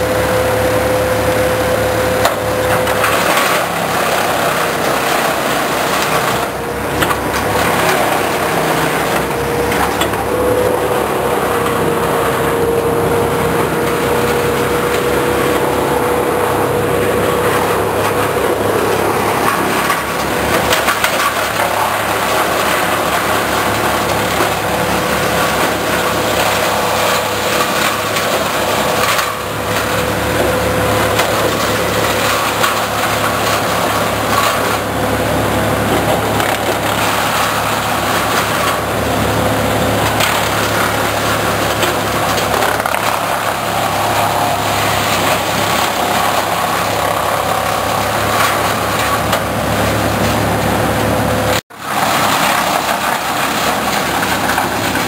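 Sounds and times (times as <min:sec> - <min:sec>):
wood chipper engine running: 0:00.0 - 0:55.0.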